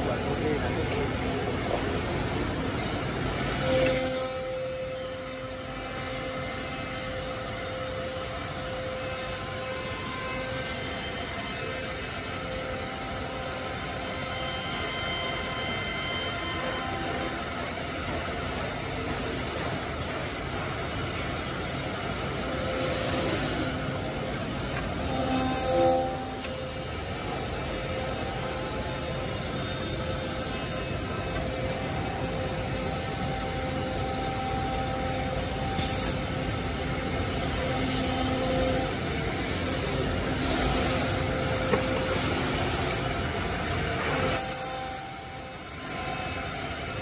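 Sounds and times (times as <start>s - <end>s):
machine spindles whining: 0.0s - 47.0s
compressed air hisses: 35.8s - 36.2s, 40.4s - 43.1s.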